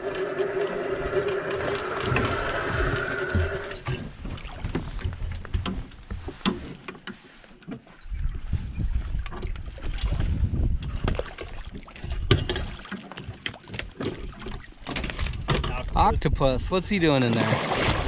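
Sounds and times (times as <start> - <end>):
water splashes: 9.7 - 14.8, 17.1 - 18.0.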